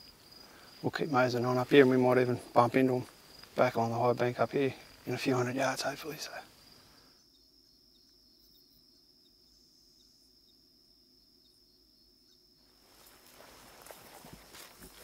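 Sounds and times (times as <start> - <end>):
rustling: 12.7 - 15.0.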